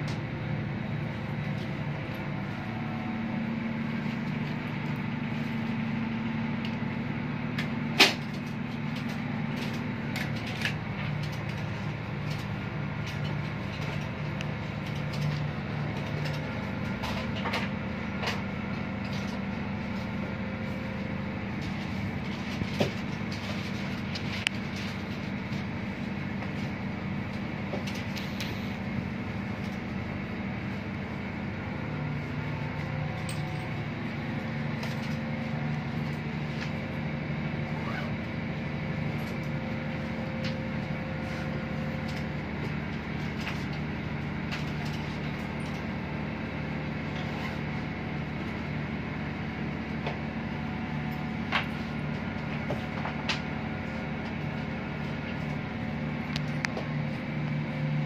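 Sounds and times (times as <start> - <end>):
machinery droning: 0.0 - 58.0.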